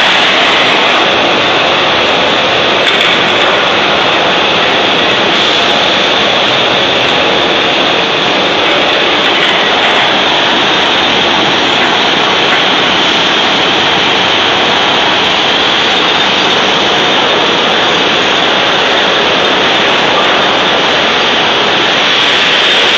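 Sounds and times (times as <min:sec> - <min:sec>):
foundry conveyor machine noise: 0:00.0 - 0:22.9.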